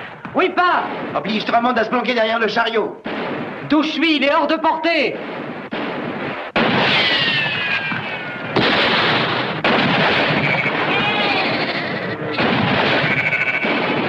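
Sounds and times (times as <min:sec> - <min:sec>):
gunshots: 0:00.0 - 0:14.0
sheep bleating: 0:10.3 - 0:12.4, 0:13.0 - 0:13.8.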